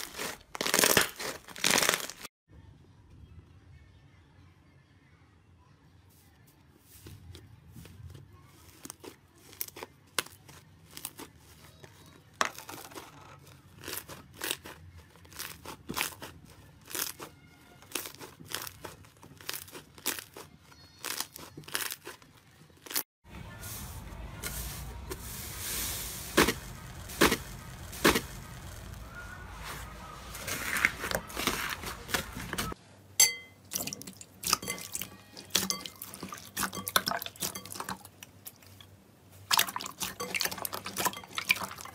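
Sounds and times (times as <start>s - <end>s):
hands stretching sticky slime: 0.0s - 2.3s
wet slime squelching: 7.8s - 23.0s, 24.5s - 32.8s, 33.7s - 41.9s.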